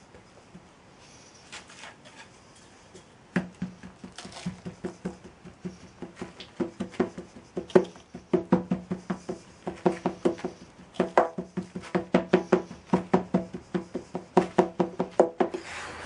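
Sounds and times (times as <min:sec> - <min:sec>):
wooden rammer pounding sand: 0:03.4 - 0:15.6.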